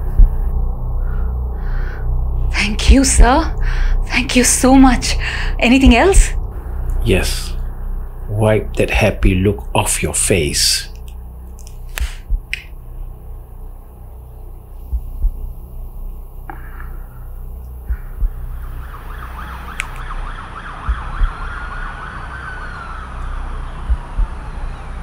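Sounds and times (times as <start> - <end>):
short low thumps: 0.0 - 8.4, 11.1 - 20.0, 20.8 - 21.4, 23.8 - 24.4
steady low rumble: 0.0 - 25.0
ambulance siren wailing: 18.4 - 25.0.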